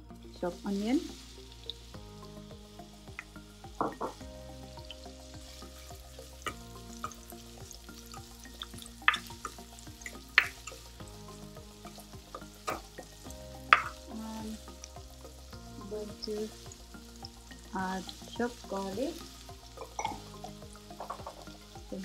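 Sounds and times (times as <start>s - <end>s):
onion sizzling in hot oil: 0.0s - 22.0s
spatula scraping and knocking pan: 19.8s - 21.6s.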